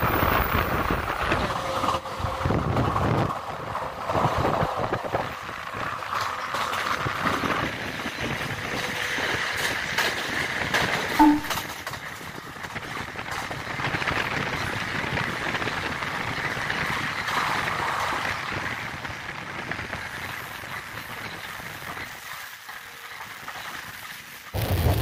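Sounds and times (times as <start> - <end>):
train running noise and wind: 0.0 - 25.0
two-tone blip: 11.2 - 11.6.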